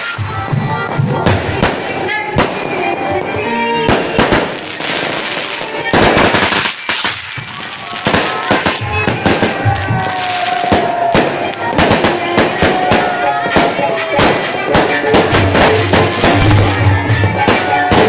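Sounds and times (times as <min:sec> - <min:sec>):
fireworks bangs and crackles: 0:00.0 - 0:18.0
fireworks hissing: 0:00.0 - 0:18.0.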